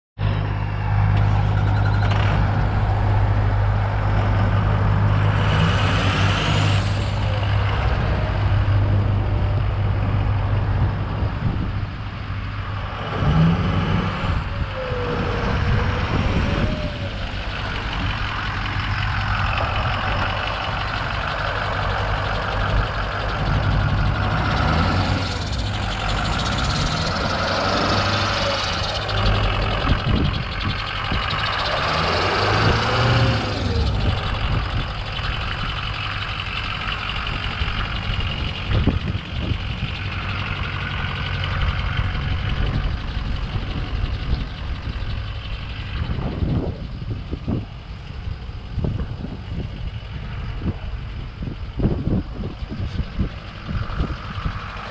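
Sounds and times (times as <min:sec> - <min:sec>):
truck engine humming: 0:00.2 - 0:54.9.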